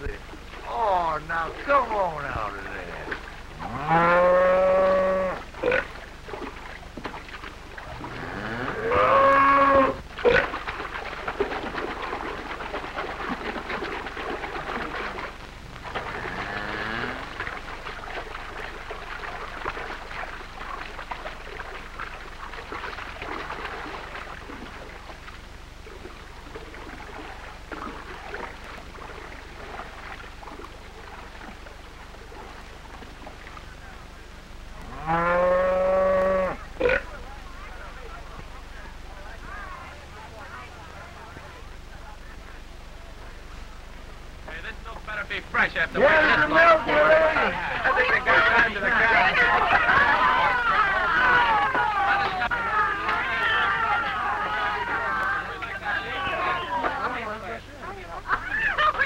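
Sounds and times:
cow mooing: 0:03.6 - 0:05.9, 0:08.0 - 0:10.4, 0:16.0 - 0:17.3, 0:34.8 - 0:37.1.

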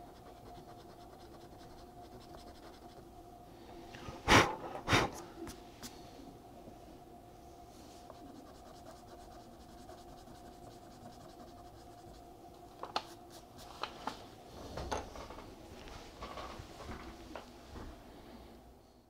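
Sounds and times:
pencil scratching on paper: 0:00.0 - 0:03.0, 0:08.1 - 0:12.2
faint steady hum: 0:00.0 - 0:19.0.

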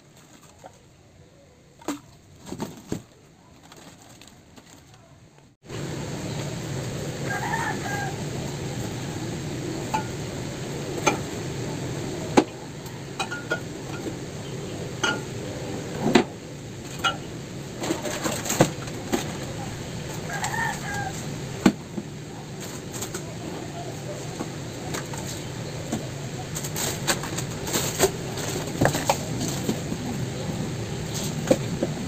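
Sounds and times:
steady low hum: 0:00.0 - 0:32.0
packets and cans knocking on shelves: 0:01.8 - 0:05.0, 0:26.6 - 0:30.0
chicken calling: 0:07.2 - 0:08.8, 0:20.1 - 0:21.4.

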